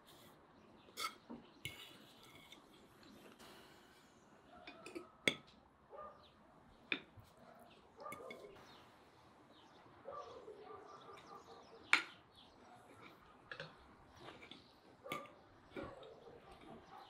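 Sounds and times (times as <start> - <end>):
metal fork clinking on clay plate: 8.1 - 8.6.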